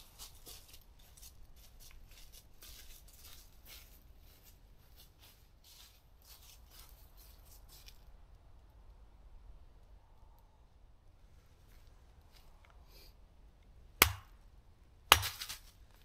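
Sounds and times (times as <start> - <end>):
faint scraping and rustling: 0.0 - 8.2, 11.2 - 13.2.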